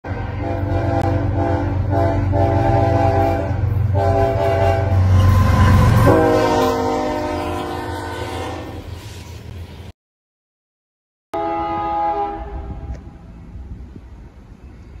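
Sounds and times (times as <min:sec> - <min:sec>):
train engine rumble: 0:00.0 - 0:09.9, 0:11.4 - 0:15.0
locomotive air horn blasts: 0:00.2 - 0:09.0, 0:11.4 - 0:13.0.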